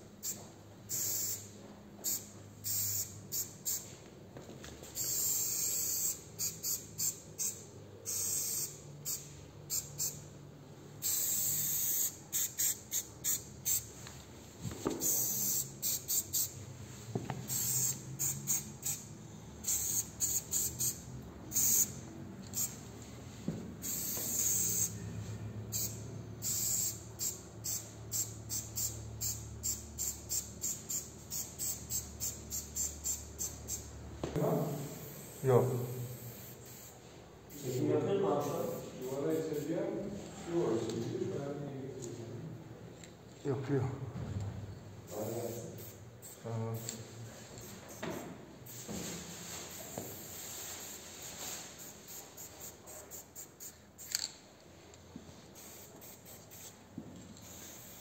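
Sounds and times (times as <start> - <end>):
spray paint hissing scratches: 0.2 - 4.0, 4.8 - 10.2, 11.0 - 14.0, 14.8 - 16.6, 17.3 - 22.8, 23.8 - 25.0, 25.7 - 33.9, 34.6 - 37.8, 38.4 - 39.7, 45.1 - 54.4, 55.5 - 58.0.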